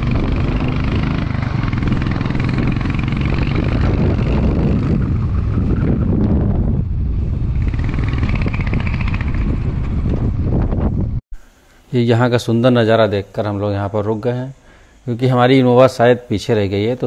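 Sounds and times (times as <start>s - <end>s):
motorcycle engine running: 0.0s - 11.2s
road noise: 0.0s - 11.2s
wind noise: 0.0s - 11.2s.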